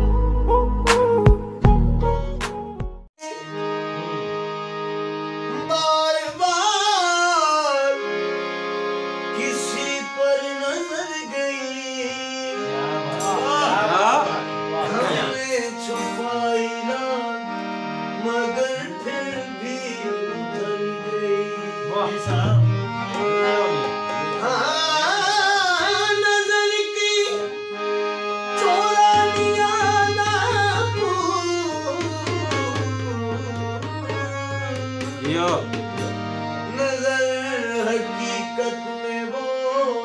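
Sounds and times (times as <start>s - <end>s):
harmonium playing: 1.6s - 40.0s
man singing long notes: 9.4s - 17.5s, 18.2s - 27.8s, 28.6s - 40.0s.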